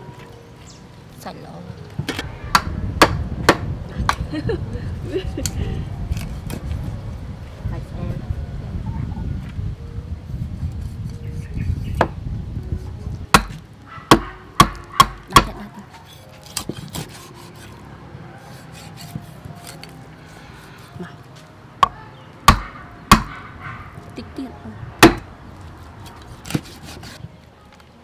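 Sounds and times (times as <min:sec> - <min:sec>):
cleaver chopping on wooden board: 0:13.4 - 0:15.6, 0:16.5 - 0:17.6, 0:21.8 - 0:23.4, 0:25.0 - 0:25.3, 0:26.4 - 0:27.2.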